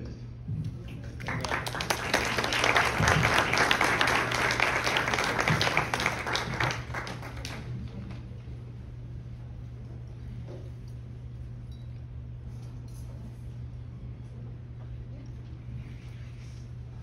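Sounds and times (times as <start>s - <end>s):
audience applauding: 0.8s - 8.3s.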